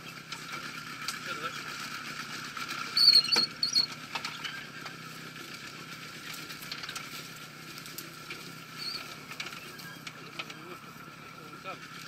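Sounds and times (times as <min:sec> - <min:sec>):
small vehicle engine running: 0:00.0 - 0:12.0
sharp high squeaks: 0:02.9 - 0:04.6.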